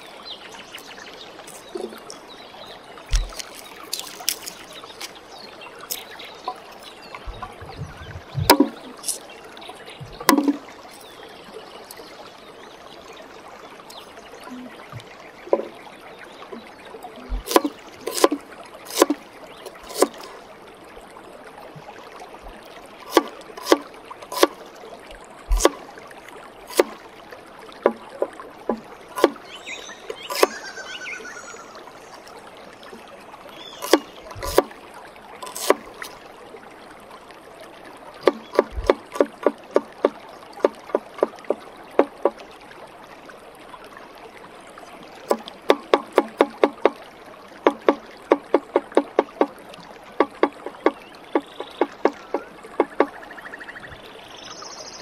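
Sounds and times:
knife chopping on wooden board: 17.4s - 20.2s, 23.1s - 23.8s, 24.4s - 24.6s, 25.5s - 25.8s, 26.7s - 27.0s, 30.3s - 30.5s, 33.8s - 34.7s, 35.4s - 35.8s.

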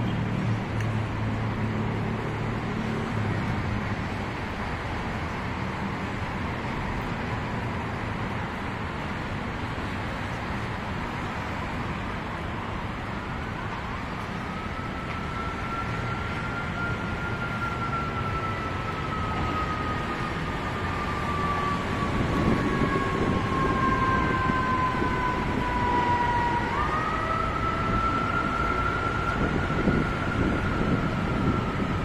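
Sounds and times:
distant road traffic rumble: 0.0s - 32.0s.

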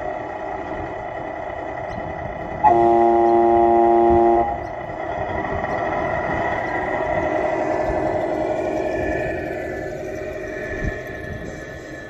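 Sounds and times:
simulated diesel engine running: 0.0s - 12.0s
multi-tone air horn: 2.6s - 4.6s.

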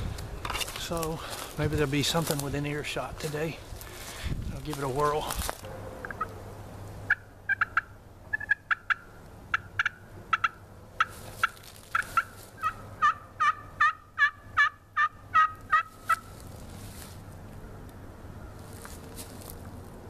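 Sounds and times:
turkey call clucks: 6.0s - 6.4s, 7.1s - 16.3s
turkey call yelps: 7.1s - 16.3s.

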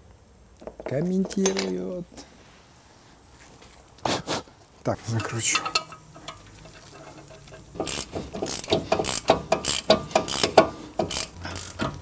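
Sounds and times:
ratchet wrench clicking: 5.2s - 12.0s.

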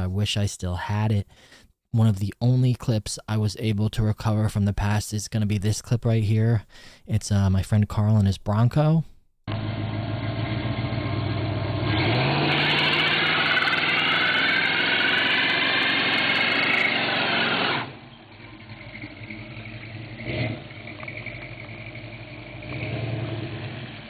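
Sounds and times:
engine revving: 9.5s - 24.0s
tyre screeching: 11.9s - 21.5s.

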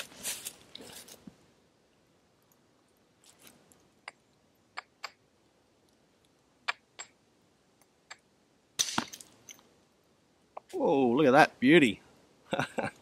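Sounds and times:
hard stone strike: 8.8s - 9.3s
stone flake clattering: 8.8s - 9.6s.

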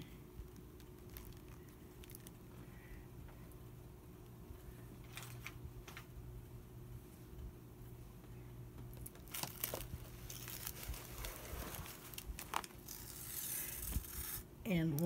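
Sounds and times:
low steady hum: 0.0s - 15.0s
paper rustling and crinkling: 9.0s - 14.4s.

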